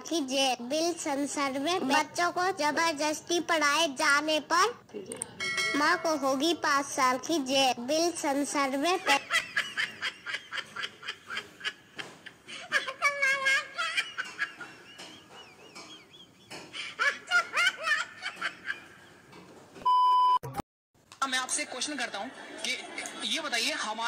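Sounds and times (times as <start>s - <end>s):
rhythmic laughter: 9.0s - 19.2s
short steady beep: 19.8s - 20.5s.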